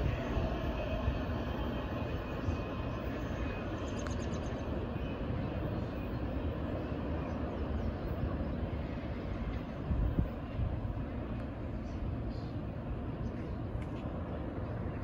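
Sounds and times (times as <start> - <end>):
distant freight train rumbling: 0.0 - 15.0.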